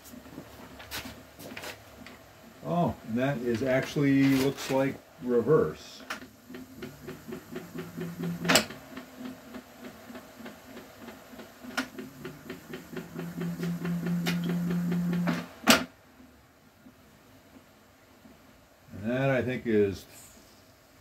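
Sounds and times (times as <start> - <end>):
steady ticking: 6.5 - 8.6, 11.9 - 15.3
electric motor hum: 6.5 - 9.3, 11.8 - 15.5.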